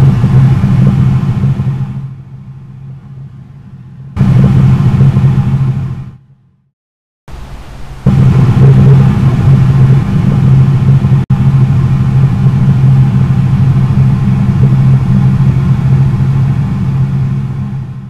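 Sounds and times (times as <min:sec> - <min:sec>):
deep rumbling: 0:04.2 - 0:06.0, 0:07.3 - 0:18.0.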